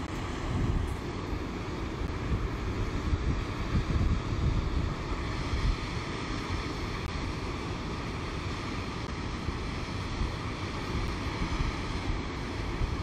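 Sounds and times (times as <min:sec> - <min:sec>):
creek water rushing over rapids: 0:04.7 - 0:13.0.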